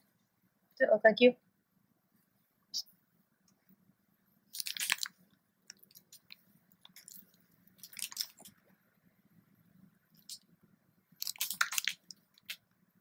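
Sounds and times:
plastic packaging crinkling: 4.6s - 8.5s, 11.2s - 12.6s.

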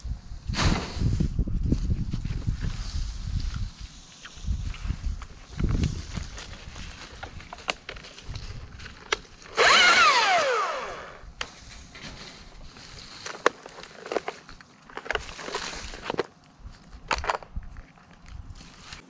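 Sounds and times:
chainsaw engine blip: 9.5s - 11.2s.

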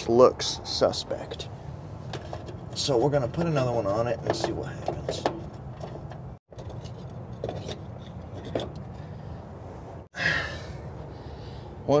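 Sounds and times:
hand tools tapping metal parts: 2.1s - 8.9s.

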